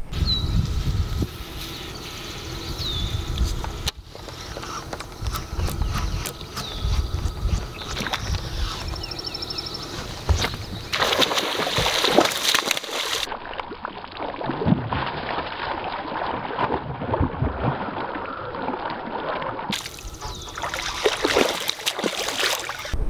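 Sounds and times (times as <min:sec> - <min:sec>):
pond water splashing: 0:03.6 - 0:23.0.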